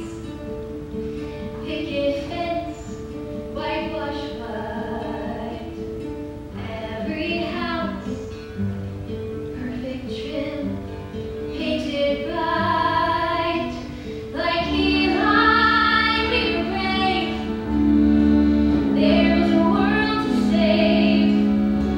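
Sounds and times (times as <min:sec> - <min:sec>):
woman singing a ballad: 0:01.6 - 0:03.0, 0:03.6 - 0:05.8, 0:06.6 - 0:08.3, 0:11.6 - 0:17.5, 0:19.0 - 0:21.5
sustained instrumental accompaniment: 0:13.9 - 0:21.9.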